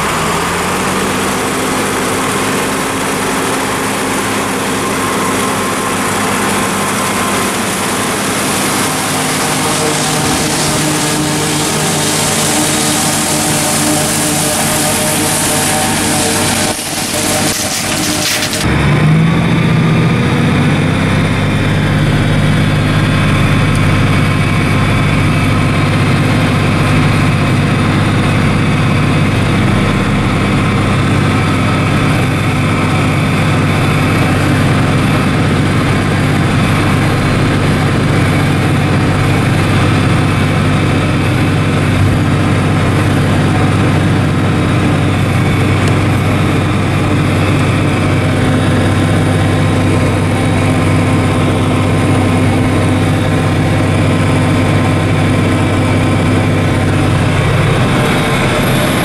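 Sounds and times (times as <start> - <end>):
forage harvester chopping corn: 0.0 - 19.2
tractor diesel engine drone: 0.0 - 59.0.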